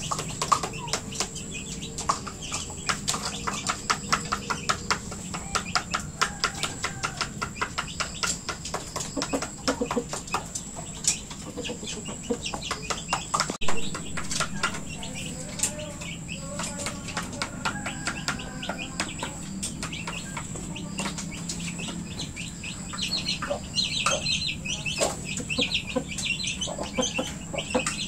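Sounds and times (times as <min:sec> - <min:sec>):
rooster clucking: 0:09.1 - 0:10.5, 0:11.4 - 0:12.9
beak tapping plastic cup: 0:12.8 - 0:22.2.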